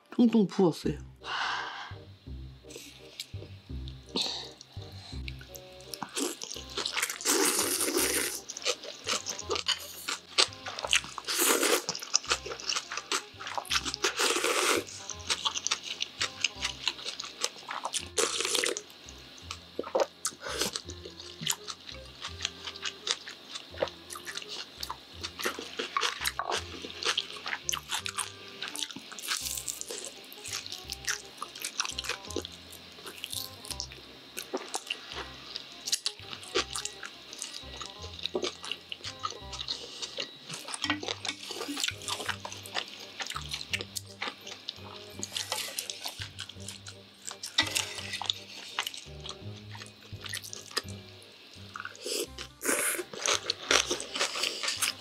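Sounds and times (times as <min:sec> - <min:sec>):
quiet background music with bass: 0:00.0 - 0:55.0
wet chewing: 0:02.7 - 0:55.0
noodles slurped loudly: 0:07.1 - 0:08.4.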